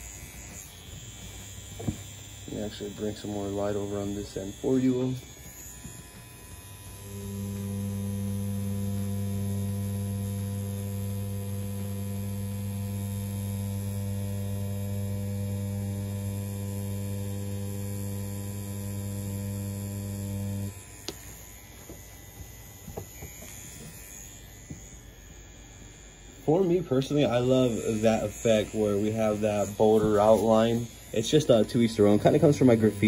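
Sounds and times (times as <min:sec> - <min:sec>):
tattoo pen electric hum: 0:00.0 - 0:33.0.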